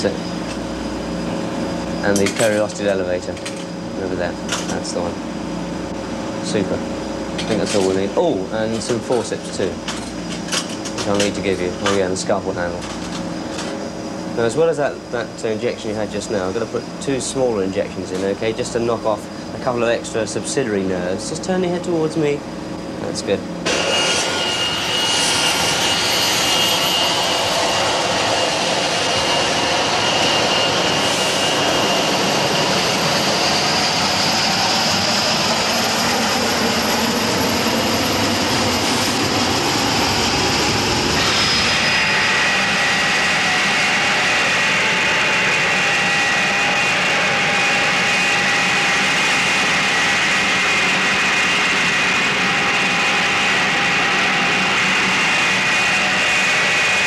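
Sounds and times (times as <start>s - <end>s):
high machine whining tones: 0.0s - 57.0s
machine rushing hiss: 30.4s - 32.6s.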